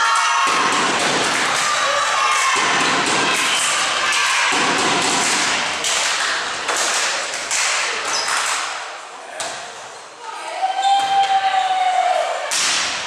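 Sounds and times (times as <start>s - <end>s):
people shouting: 0.0s - 5.7s.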